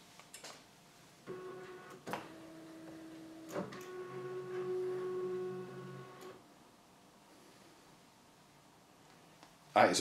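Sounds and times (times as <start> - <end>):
motorised speaker whirring: 1.3 - 6.4.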